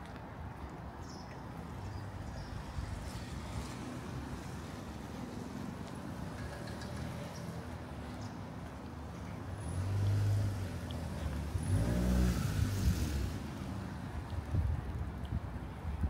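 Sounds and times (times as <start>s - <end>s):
car driving past: 9.7s - 13.4s.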